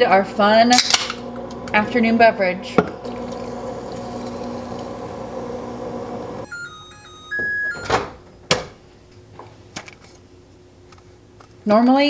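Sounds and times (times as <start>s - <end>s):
microwave oven humming: 0.4s - 8.1s
microwave beeps: 3.9s - 8.2s.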